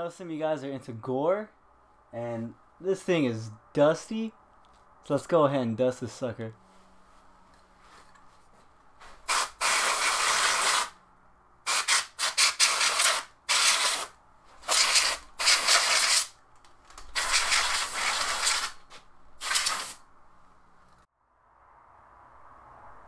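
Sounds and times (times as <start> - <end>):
compressed air spray hissing: 9.2 - 11.0, 11.7 - 16.3, 17.2 - 18.8, 19.4 - 20.0.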